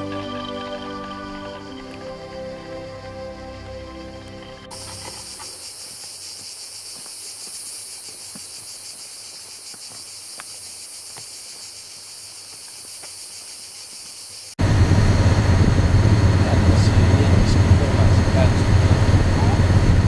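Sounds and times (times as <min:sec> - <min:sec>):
cicadas shrilling: 0:00.0 - 0:14.6.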